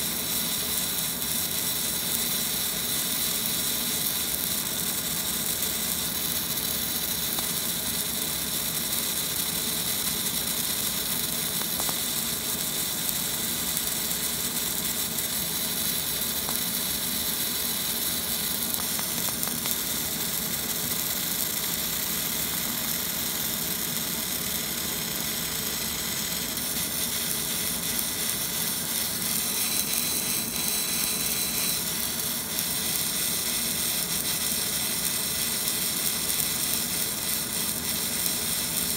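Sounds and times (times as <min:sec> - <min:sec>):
laser engraving metal hiss: 0:00.0 - 0:38.9.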